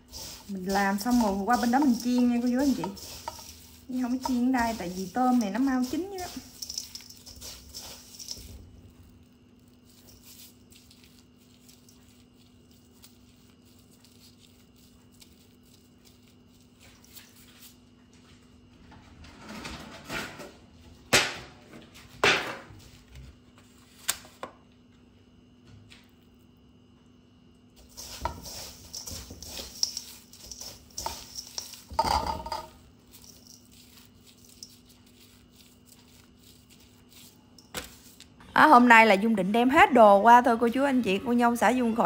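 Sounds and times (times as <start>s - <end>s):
hands rustling in breadcrumbs: 0.0s - 17.9s, 27.8s - 38.3s
low steady hum: 0.0s - 22.1s.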